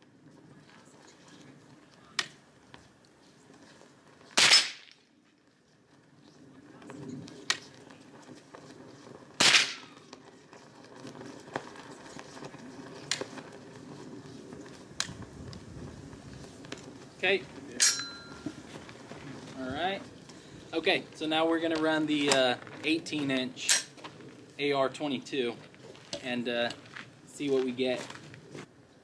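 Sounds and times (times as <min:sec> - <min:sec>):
rifle shots: 0:04.4 - 0:04.9, 0:09.4 - 0:09.9.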